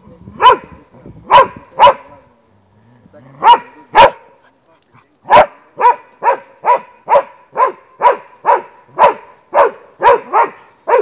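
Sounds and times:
dog barking: 0.4 - 0.7, 1.3 - 2.2, 3.4 - 4.3, 5.3 - 11.0.

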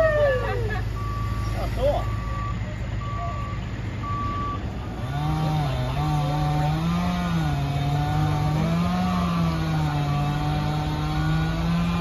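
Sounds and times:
diesel excavator engine running: 0.0 - 12.0
back-up alarm beeps: 0.9 - 4.6.

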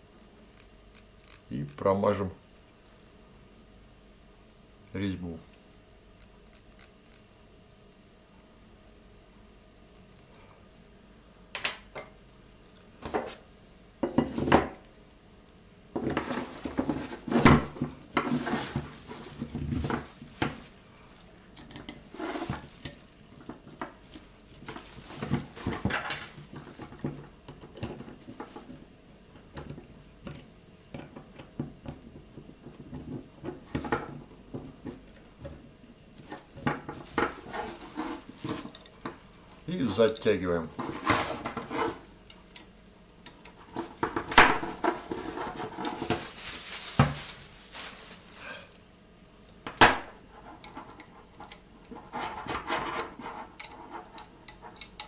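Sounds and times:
handling noise: 16.0 - 28.9, 29.7 - 42.5, 43.3 - 48.5.

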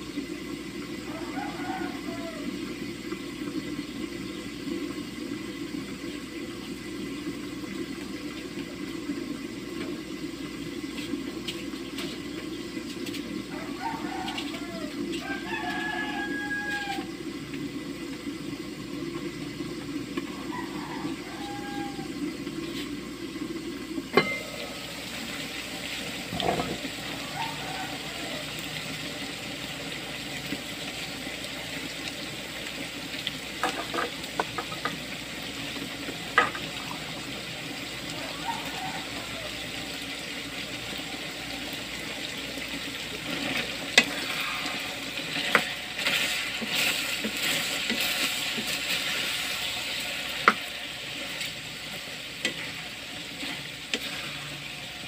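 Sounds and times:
meat sizzling in a pan: 0.0 - 55.0
metal clinking on pan: 24.2 - 24.5
spatula scraping pan: 43.1 - 55.0.

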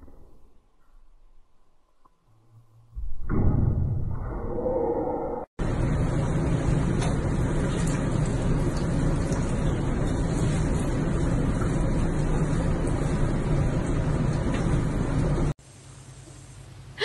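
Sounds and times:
water running into bathtub: 5.6 - 15.6.

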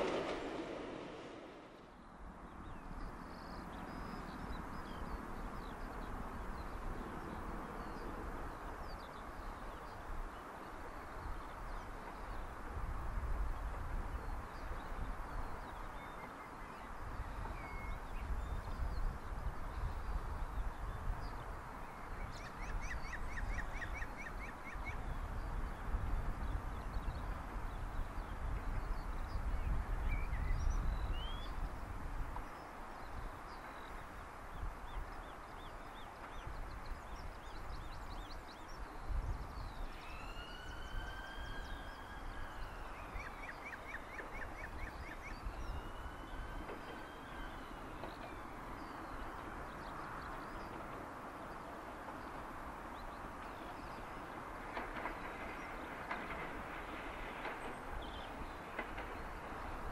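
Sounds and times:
gusting low rumble: 0.0 - 2.2.

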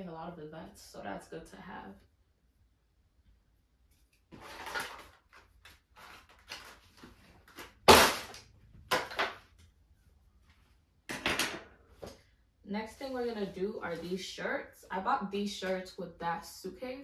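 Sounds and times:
objects clattering: 7.9 - 9.5.

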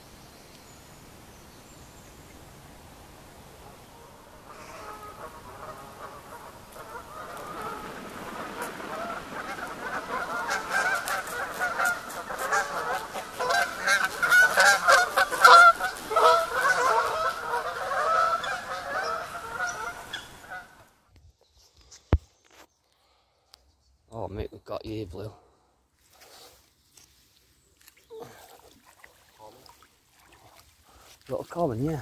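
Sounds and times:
geese honking: 3.6 - 20.9.

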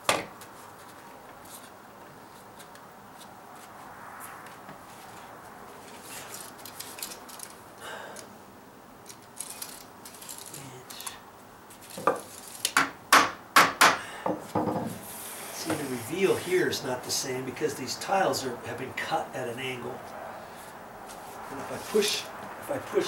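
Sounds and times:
handling scrapes and clicks: 5.9 - 7.6, 9.0 - 12.8.

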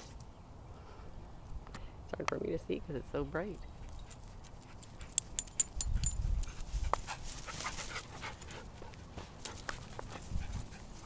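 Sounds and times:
grass rustling: 3.3 - 11.0
dog panting: 6.5 - 11.0.

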